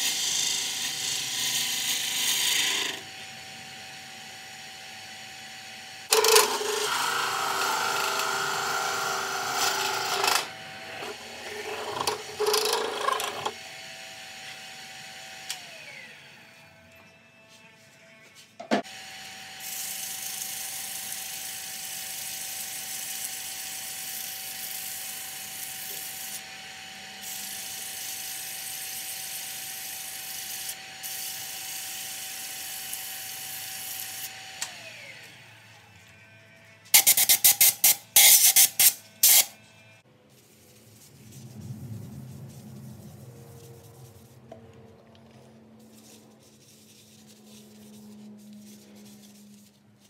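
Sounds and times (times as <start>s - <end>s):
lathe motor hum: 2.7s - 16.4s
sandpaper hissing on wood: 37.0s - 39.5s, 45.8s - 50.0s.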